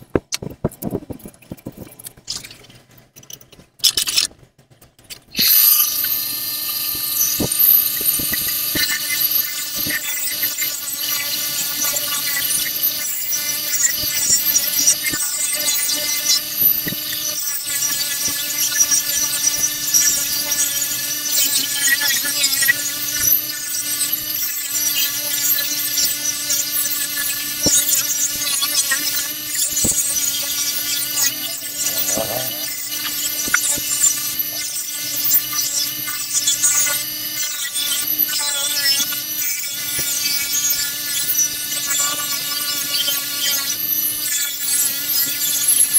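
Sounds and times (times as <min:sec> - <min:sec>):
bench grinder motor hum: 0:05.3 - 0:45.9
metal grinding hiss: 0:29.3 - 0:34.5.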